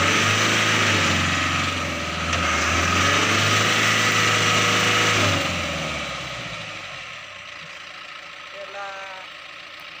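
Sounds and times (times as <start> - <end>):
truck engine revving hard: 0.0 - 7.1.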